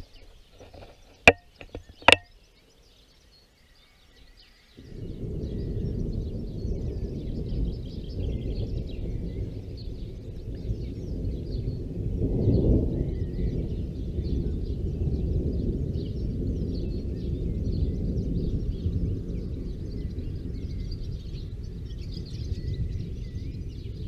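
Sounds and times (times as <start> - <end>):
sharp knocks: 0.6 - 2.3
thunder rumbling: 4.7 - 24.0.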